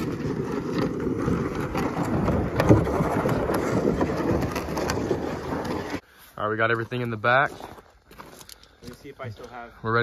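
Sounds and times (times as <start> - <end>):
sled scraping over snow and gravel: 0.0 - 8.4.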